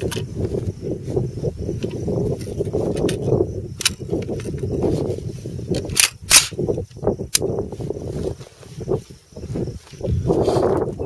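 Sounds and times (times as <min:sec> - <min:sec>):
rifle metallic clacks: 0:05.8 - 0:06.6.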